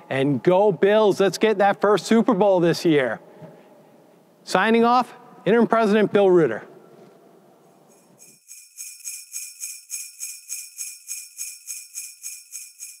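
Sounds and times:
sleigh bells jingling: 0:07.9 - 0:13.0.

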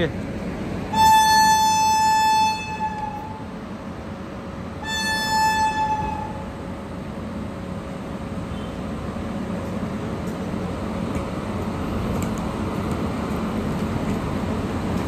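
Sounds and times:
train rumble: 0:00.0 - 0:15.0
locomotive horn blasts: 0:00.9 - 0:03.5, 0:04.8 - 0:06.6.

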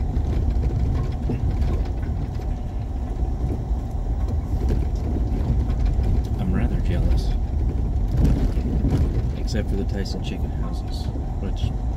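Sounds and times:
faint rattles: 0:00.0 - 0:11.9
vehicle engine and road rumble: 0:00.0 - 0:11.9.

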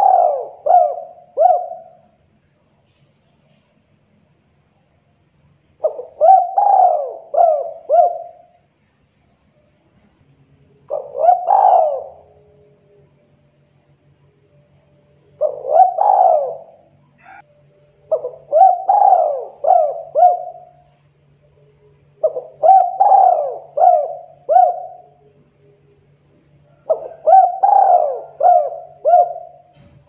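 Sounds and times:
dove cooing: 0:00.0 - 0:02.1, 0:05.8 - 0:08.6, 0:10.9 - 0:12.6, 0:15.4 - 0:17.4, 0:18.1 - 0:20.9, 0:22.2 - 0:25.3, 0:26.7 - 0:29.7.

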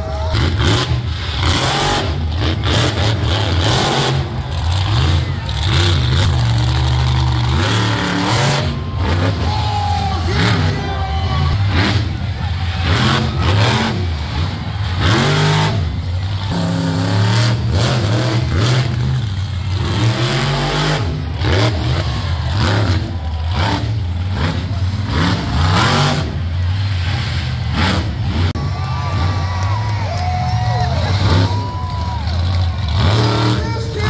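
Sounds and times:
monster truck engine revving: 0:00.0 - 0:34.0.

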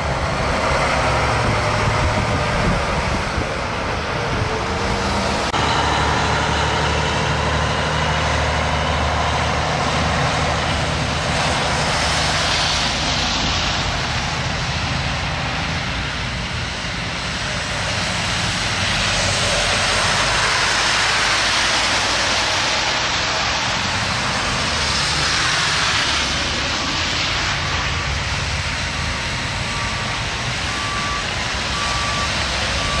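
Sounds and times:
diesel truck engines rumbling: 0:00.0 - 0:33.0
tyres hissing through slush: 0:08.9 - 0:15.0, 0:17.4 - 0:29.6.

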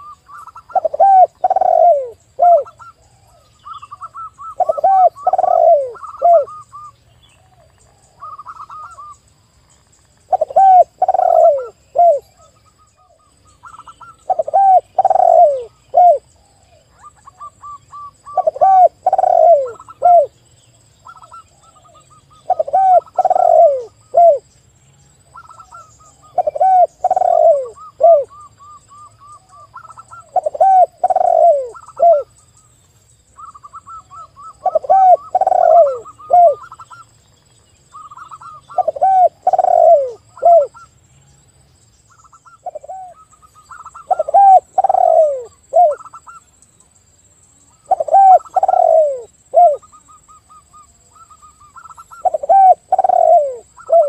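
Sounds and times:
low falling dove coos: 0:00.0 - 0:06.6, 0:10.3 - 0:12.5, 0:13.7 - 0:20.4, 0:21.1 - 0:24.4, 0:25.4 - 0:32.3, 0:33.4 - 0:37.0, 0:38.0 - 0:40.8, 0:42.6 - 0:46.2, 0:47.8 - 0:54.0.

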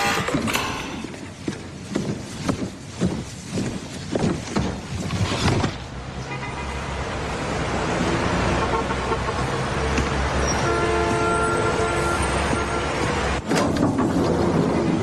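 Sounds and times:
city traffic rumble: 0:00.0 - 0:15.0
footsteps on hard floor: 0:01.1 - 0:05.3.

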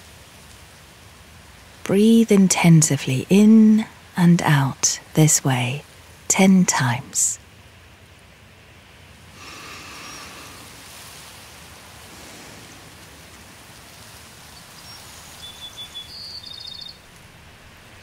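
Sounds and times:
soft rushing nature ambience: 0:00.0 - 0:18.0
bird chirping trill: 0:14.7 - 0:17.0.

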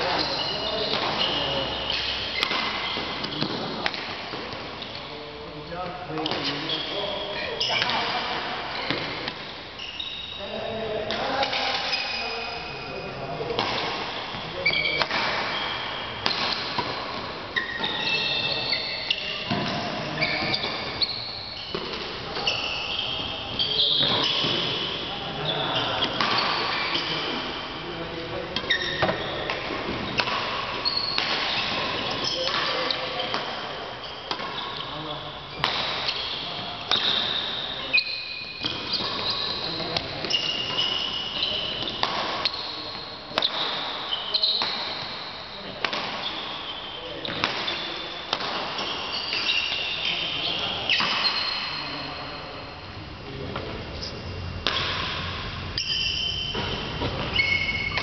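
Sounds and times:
racket hitting shuttlecock: 0:00.0 - 0:05.1, 0:06.1 - 0:06.7, 0:13.5 - 0:22.5, 0:26.0 - 0:27.5, 0:28.6 - 0:45.2, 0:45.8 - 0:46.6, 0:47.2 - 0:51.7, 0:54.6 - 0:58.0
shoes squeaking on court floor: 0:00.0 - 0:58.0.

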